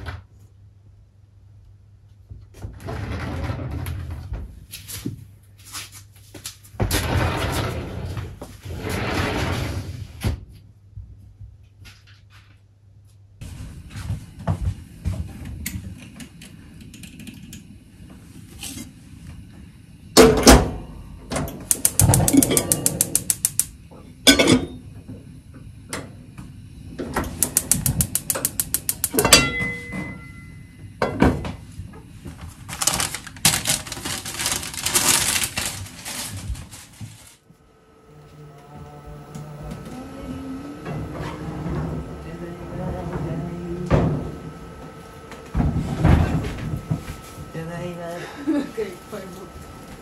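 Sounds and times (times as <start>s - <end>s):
rapid even clicking: 21.7s - 23.7s, 27.3s - 29.2s
pans and lids clattering: 29.2s - 30.4s.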